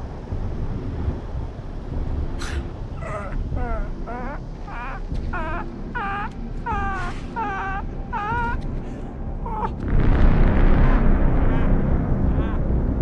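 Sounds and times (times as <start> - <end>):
low rumble: 0.0 - 13.0.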